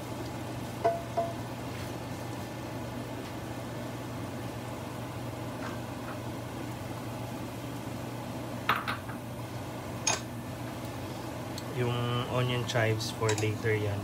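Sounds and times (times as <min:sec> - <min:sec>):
onions sizzling in a pan: 0:00.0 - 0:14.0.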